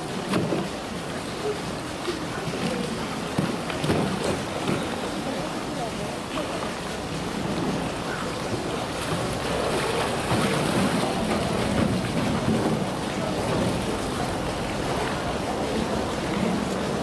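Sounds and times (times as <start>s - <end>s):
water sloshing and churning: 0.0s - 17.0s.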